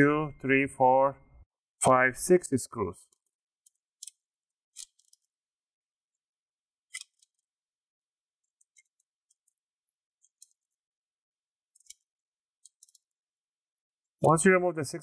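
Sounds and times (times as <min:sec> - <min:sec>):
faint clicks of tiny screws: 0:11.7 - 0:13.1.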